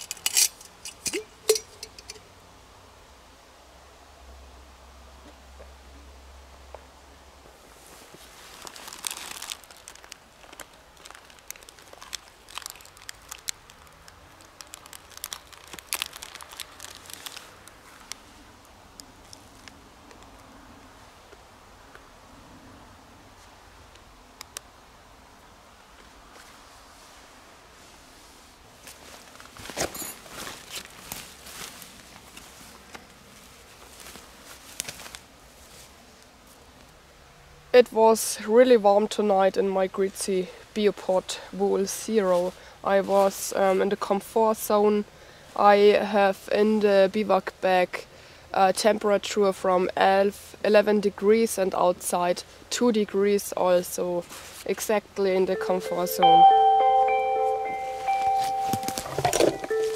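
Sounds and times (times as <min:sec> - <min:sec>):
rustling of nylon fabric: 0:07.6 - 0:18.5, 0:26.3 - 0:36.7, 0:54.2 - 0:54.8
plastic wrapper crinkling: 0:08.4 - 0:18.2, 0:58.3 - 0:59.9.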